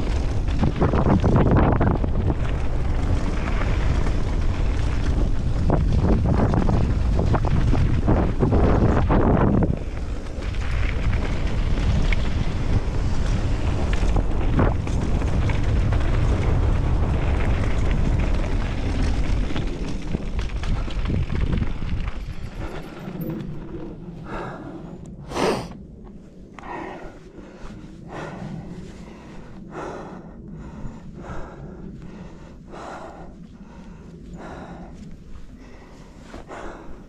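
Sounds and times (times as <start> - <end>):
bike tyres rumbling over rocky trail: 0.0 - 37.0
wind rushing over microphone: 0.0 - 37.0
person breathing heavily: 22.5 - 37.0.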